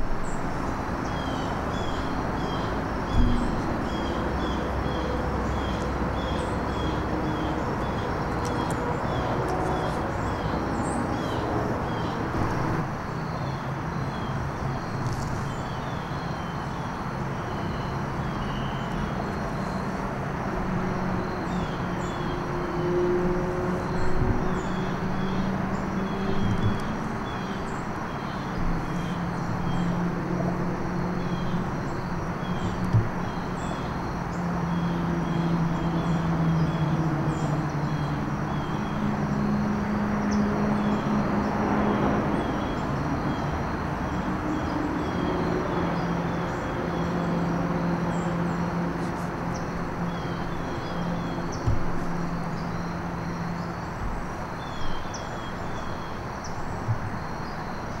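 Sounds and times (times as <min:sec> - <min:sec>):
distant engine drone: 0:00.0 - 0:58.0
short thumps: 0:51.6 - 0:52.3.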